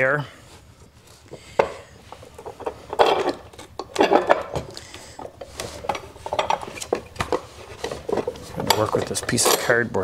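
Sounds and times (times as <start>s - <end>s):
metal pipe clamps clinking: 2.1s - 4.6s, 5.2s - 9.9s.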